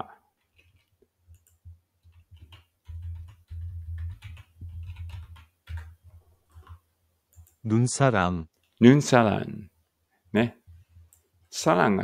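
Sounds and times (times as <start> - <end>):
keyboard keys clicking: 0.4 - 7.6.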